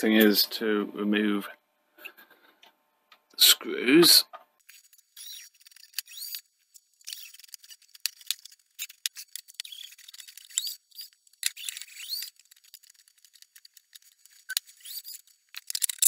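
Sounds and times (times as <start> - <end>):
screwdriver metallic clicks and rattles: 7.0 - 16.0.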